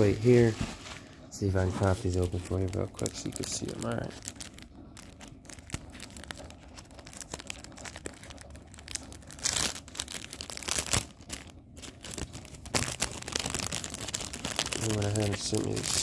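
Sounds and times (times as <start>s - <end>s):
packing paper crinkling: 0.0s - 16.0s
paper tearing rustle: 5.5s - 16.0s.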